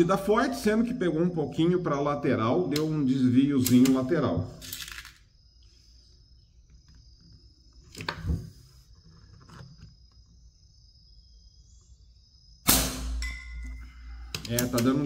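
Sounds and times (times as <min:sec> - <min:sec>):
air rifle shot: 0:12.6 - 0:13.3
steel target ringing: 0:12.7 - 0:13.7.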